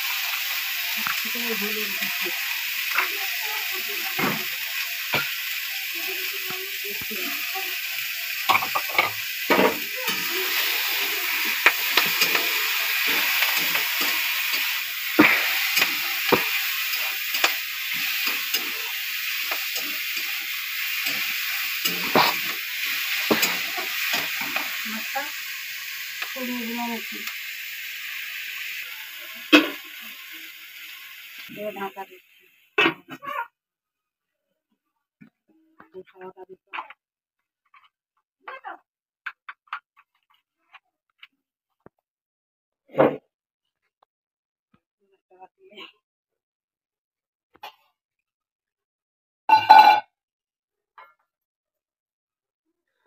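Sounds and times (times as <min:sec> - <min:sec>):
vegetables sizzling in hot oil: 0:00.0 - 0:33.4
spatula scraping and knocking pan: 0:11.2 - 0:24.8.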